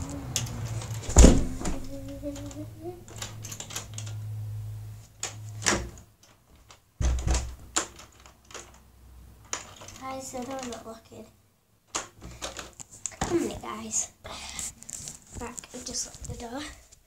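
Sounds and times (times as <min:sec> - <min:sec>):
scattered clicks and knocks: 0:00.0 - 0:04.2, 0:05.2 - 0:08.8, 0:09.4 - 0:11.0
heavy thump: 0:01.1 - 0:02.0.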